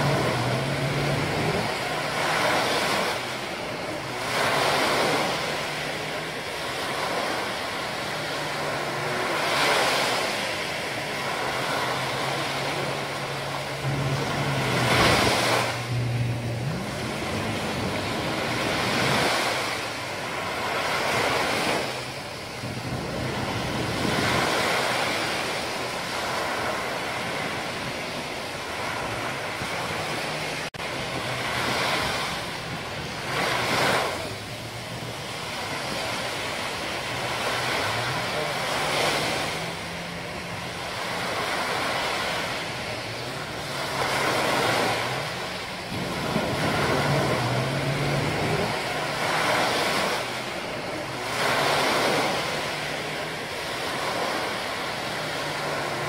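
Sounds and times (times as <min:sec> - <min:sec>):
low motor drone: 0:00.0 - 0:56.0
small waves breaking on beach: 0:00.0 - 0:56.0.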